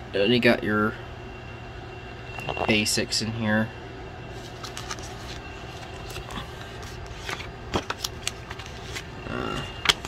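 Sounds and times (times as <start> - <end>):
steady low hum: 0.0 - 10.0
paper pages turning: 4.4 - 9.1.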